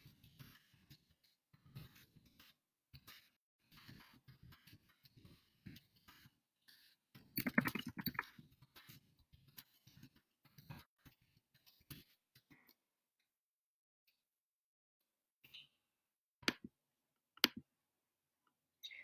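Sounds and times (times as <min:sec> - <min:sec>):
pen writing on paper: 0:00.2 - 0:12.2.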